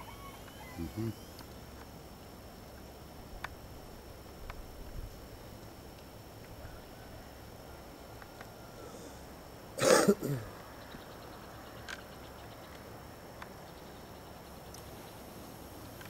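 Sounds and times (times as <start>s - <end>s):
person coughing: 9.8s - 10.5s.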